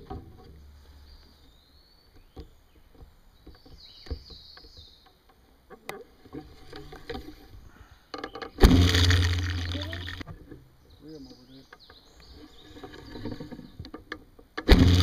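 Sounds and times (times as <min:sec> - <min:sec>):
bow clicks and knocks: 0:00.0 - 0:15.0.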